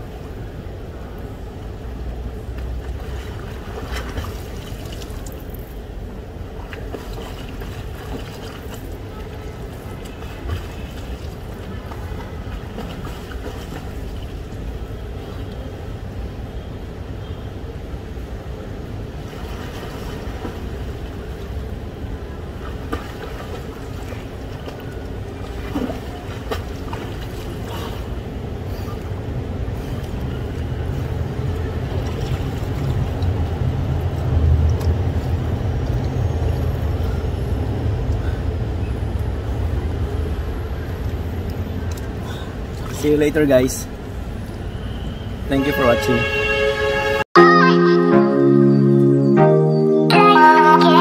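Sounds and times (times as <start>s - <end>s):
swimmer splashing in pool: 22.6s - 28.2s.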